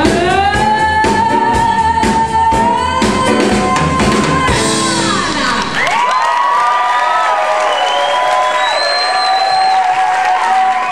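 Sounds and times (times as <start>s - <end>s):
live band drums and bass: 0.0s - 6.0s
audience whooping and cheering: 5.2s - 10.9s.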